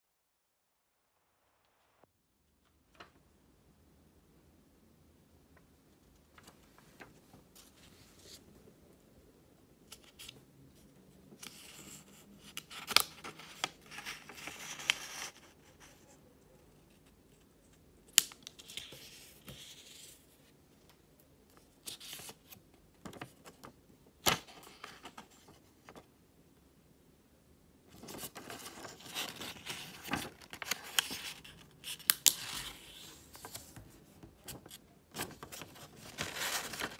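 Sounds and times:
paper rustling and sliding: 0:27.9 - 0:36.9
paper snaps and taps: 0:32.0 - 0:32.5.

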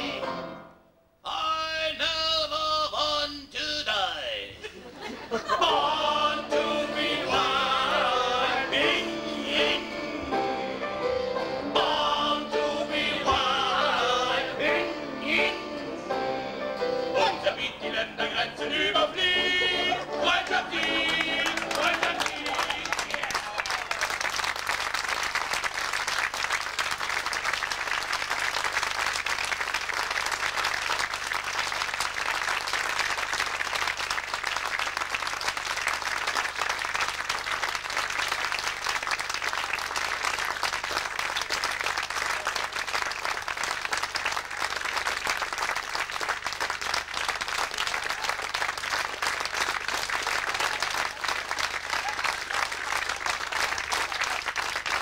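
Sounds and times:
audience applauding: 0:19.5 - 0:55.0.

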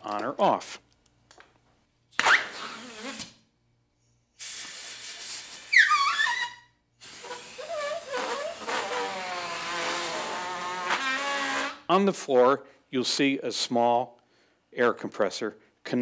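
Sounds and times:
rubber grip squealing: 0:02.2 - 0:03.4, 0:05.6 - 0:11.9
compressed air hissing: 0:04.4 - 0:05.8, 0:07.0 - 0:10.3.

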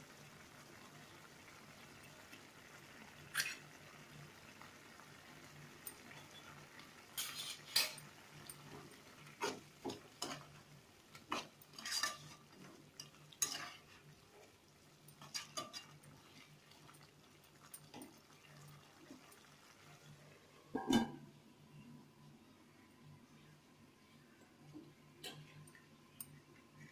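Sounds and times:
metal spoon scraping a pan: 0:03.3 - 0:03.7, 0:07.1 - 0:08.7, 0:09.4 - 0:10.6, 0:11.2 - 0:14.0, 0:15.2 - 0:16.1.

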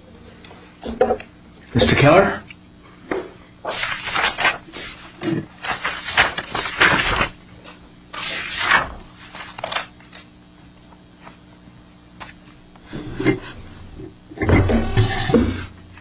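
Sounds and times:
faint electrical hum: 0:00.0 - 0:16.0
papers rustling and knocking: 0:03.1 - 0:10.3.

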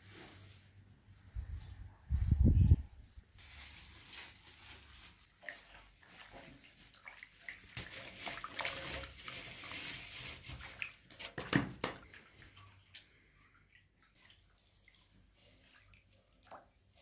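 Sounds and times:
water sloshing and splashing: 0:03.4 - 0:17.0
hand squeezing dough in water: 0:04.6 - 0:17.0.

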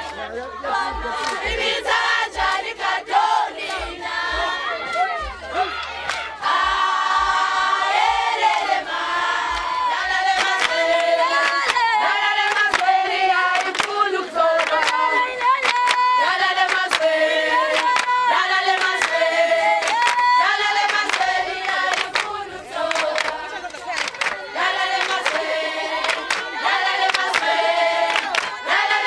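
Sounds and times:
group of women singing: 0:00.0 - 0:29.0
sharp hand claps: 0:10.3 - 0:14.0, 0:14.6 - 0:17.1, 0:17.7 - 0:28.6.

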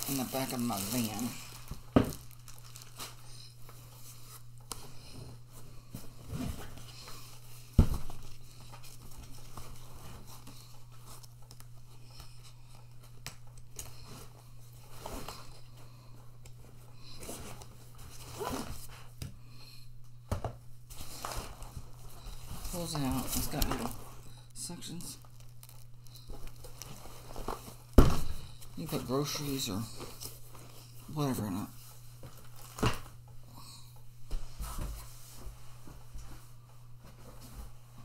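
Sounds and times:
plastic bag crinkling: 0:00.0 - 0:03.5, 0:22.5 - 0:28.0.

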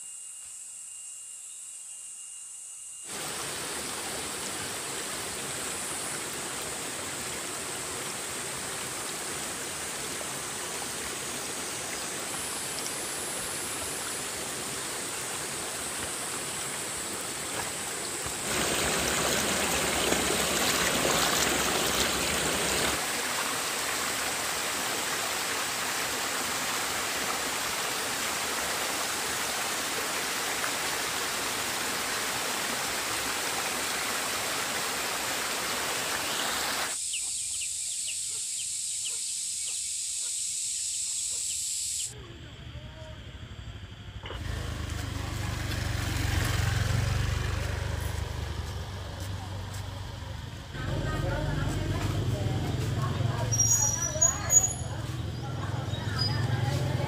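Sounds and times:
high-pitched hiss: 0:00.0 - 0:23.0, 0:23.8 - 0:43.6
running water rushing: 0:03.1 - 0:37.0.

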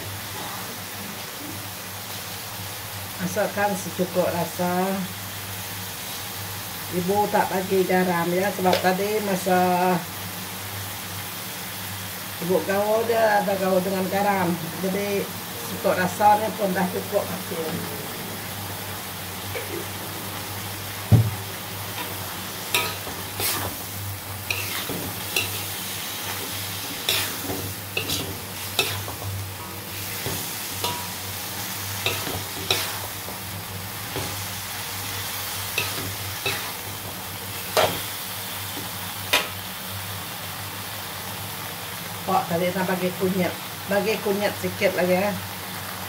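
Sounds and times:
food sizzling in hot oil: 0:00.0 - 0:46.0
metal spatula scraping a wok: 0:21.9 - 0:33.4, 0:35.7 - 0:36.9.

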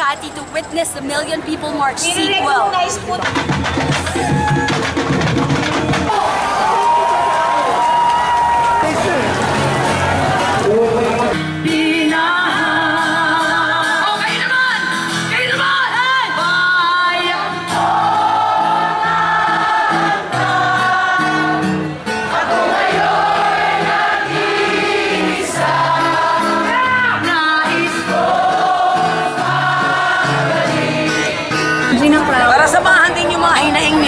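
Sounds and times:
band playing: 0:01.1 - 0:13.7, 0:14.5 - 0:34.0
crowd singing along: 0:09.3 - 0:34.0
women singing into microphones: 0:11.6 - 0:21.6, 0:22.9 - 0:31.3.

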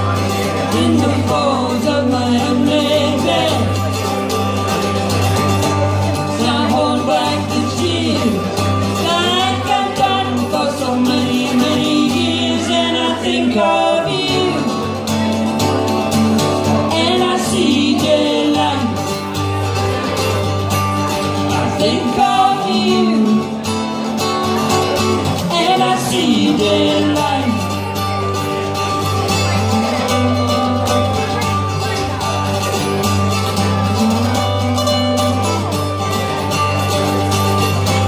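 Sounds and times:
acoustic guitar strummed: 0:00.0 - 0:38.0
woman singing: 0:00.7 - 0:03.8, 0:06.2 - 0:14.9, 0:16.7 - 0:19.0, 0:21.5 - 0:23.6, 0:25.4 - 0:27.7.

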